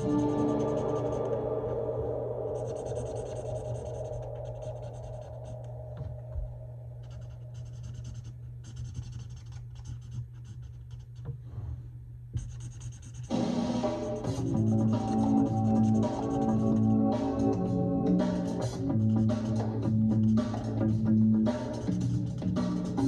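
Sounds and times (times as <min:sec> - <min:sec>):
low steady hum: 0:00.0 - 0:23.0
marker scratching on paper: 0:07.0 - 0:11.2, 0:12.4 - 0:13.3, 0:14.1 - 0:17.5.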